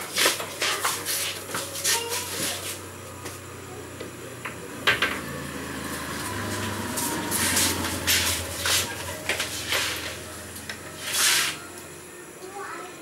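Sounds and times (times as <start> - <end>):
low voices: 0.0 - 13.0
steady low hum: 0.0 - 13.0.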